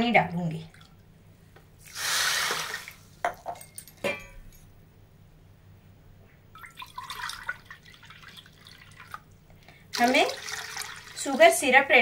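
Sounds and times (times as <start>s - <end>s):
water splashing onto sugar: 1.9s - 3.0s, 6.6s - 9.2s, 9.9s - 11.7s
light clinks: 3.3s - 4.7s.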